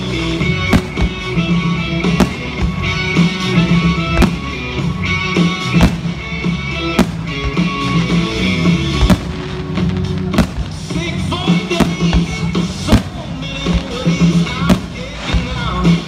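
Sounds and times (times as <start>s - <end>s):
music: 0.0s - 16.0s
firework shells bursting: 0.7s - 4.7s, 5.4s - 8.1s.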